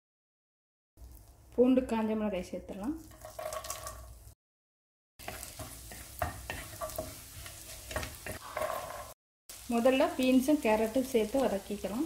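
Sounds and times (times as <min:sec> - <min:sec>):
garlic sizzling in butter: 0:02.7 - 0:04.4, 0:05.2 - 0:12.0
wooden spatula knocking pan: 0:05.2 - 0:08.7.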